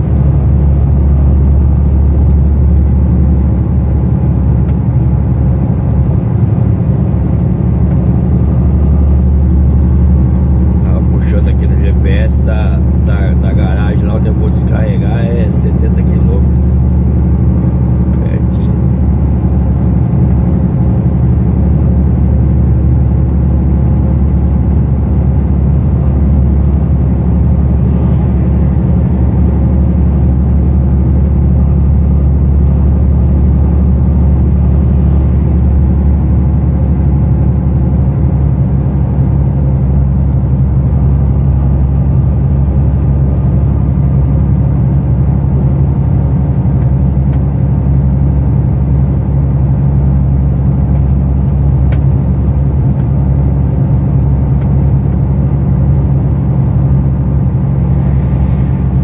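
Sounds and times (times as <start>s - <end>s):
truck diesel engine droning: 0.0s - 59.0s
tyre and road noise: 0.0s - 59.0s.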